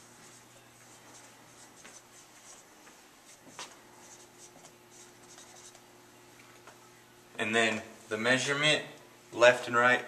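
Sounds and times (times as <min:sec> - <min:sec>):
faint steady hum: 0:00.0 - 0:10.0
marker squeaking on whiteboard: 0:03.4 - 0:05.8.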